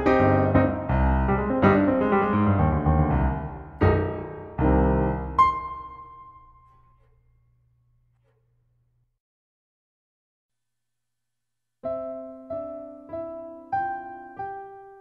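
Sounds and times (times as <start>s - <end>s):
piano chords: 0.0s - 7.2s, 11.8s - 15.0s.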